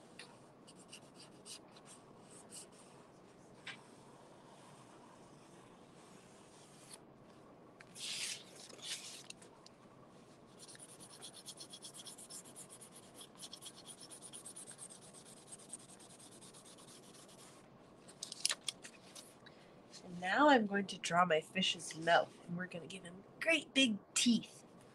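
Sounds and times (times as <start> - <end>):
marker scratching on cardboard: 0.7 - 2.9, 10.5 - 17.6.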